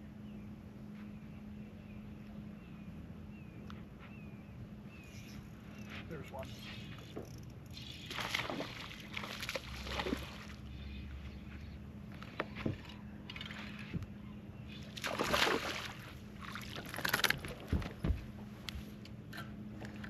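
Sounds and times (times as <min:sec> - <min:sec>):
faint steady hum: 0:00.0 - 0:20.0
water sloshing and splashing: 0:08.0 - 0:10.9, 0:12.1 - 0:18.4.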